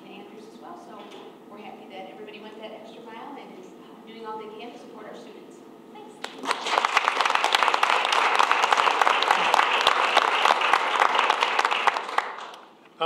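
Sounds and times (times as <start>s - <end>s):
audience applauding: 6.2s - 12.7s.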